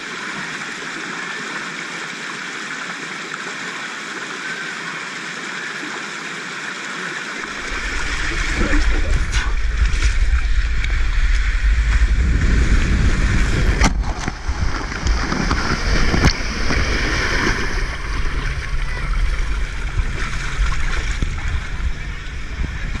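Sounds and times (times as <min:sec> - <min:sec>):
water rushing and spraying: 0:00.0 - 0:23.0
rumble of water and wind: 0:07.4 - 0:23.0.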